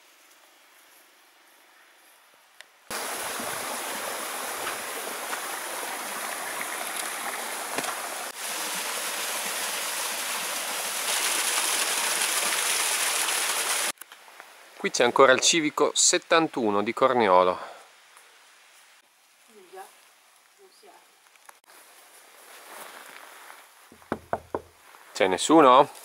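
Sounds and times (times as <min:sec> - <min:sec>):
stream running over rocks: 0:02.9 - 0:14.0, 0:24.0 - 0:24.7.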